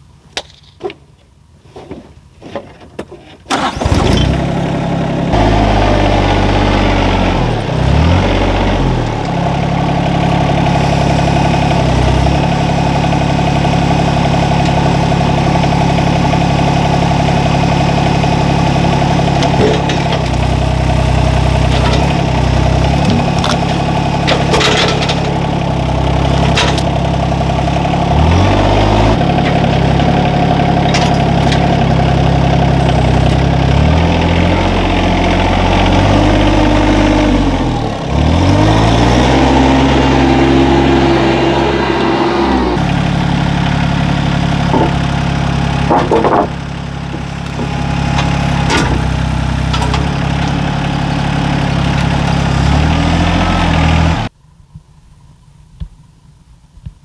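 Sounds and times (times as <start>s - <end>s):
tractor diesel engine: 1.8s - 54.4s
grapple knocking logs: 21.4s - 25.6s, 44.5s - 50.6s.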